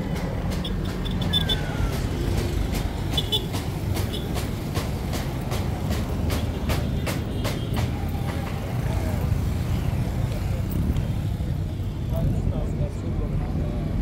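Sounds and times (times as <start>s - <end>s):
engines rumbling in traffic: 0.0s - 14.0s
faint voices: 7.8s - 14.0s.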